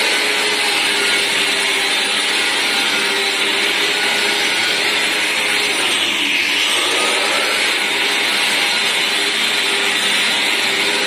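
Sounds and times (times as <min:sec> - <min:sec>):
drywall sander motor whirring: 0:00.0 - 0:11.0
suction rushing through hose: 0:05.8 - 0:07.8.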